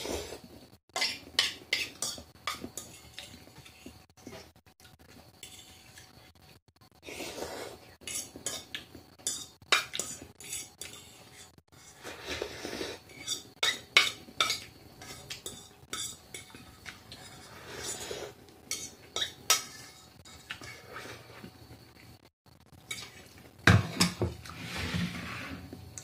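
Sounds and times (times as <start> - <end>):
slurping noodles: 7.0 - 7.9, 11.9 - 13.5.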